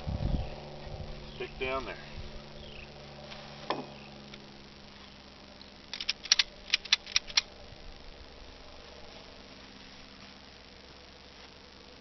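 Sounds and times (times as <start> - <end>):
ratchet strap clicking: 5.9 - 7.5.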